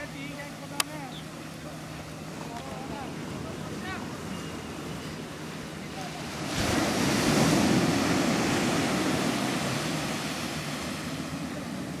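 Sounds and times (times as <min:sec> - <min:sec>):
ocean surf breaking on beach: 0:02.8 - 0:12.0.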